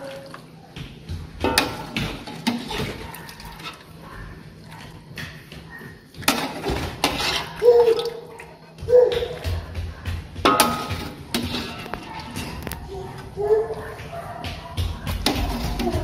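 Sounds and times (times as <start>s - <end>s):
metal ladle knocking on pot: 1.4s - 2.8s, 10.4s - 11.8s, 15.2s - 16.0s.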